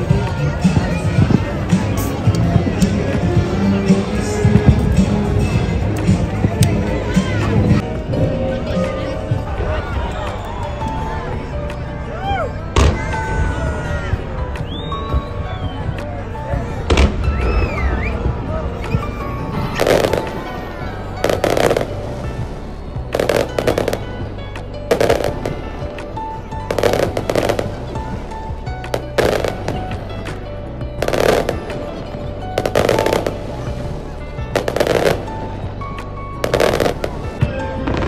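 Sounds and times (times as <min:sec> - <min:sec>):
background music: 0:00.0 - 0:38.0
fireworks banging: 0:18.8 - 0:30.4, 0:31.0 - 0:35.5, 0:36.4 - 0:38.0.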